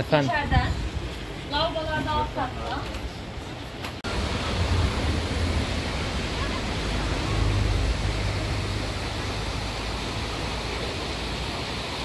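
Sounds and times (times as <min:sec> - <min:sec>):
low rumble: 0:04.0 - 0:10.6
river rushing over rocks: 0:04.1 - 0:12.0.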